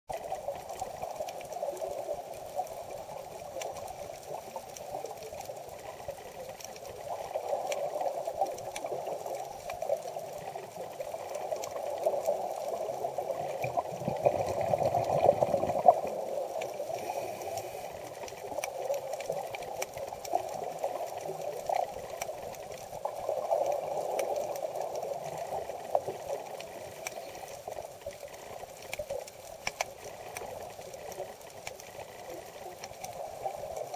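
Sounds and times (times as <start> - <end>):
scuba exhale bubbling: 5.7 - 28.6
underwater hiss: 7.0 - 22.1.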